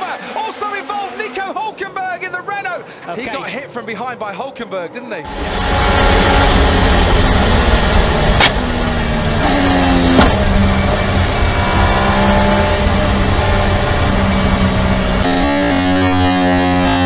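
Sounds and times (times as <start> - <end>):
race car engine downshifting: 5.2 - 17.0
wind and road rush: 5.3 - 17.0
sharp knocks: 9.8 - 11.1.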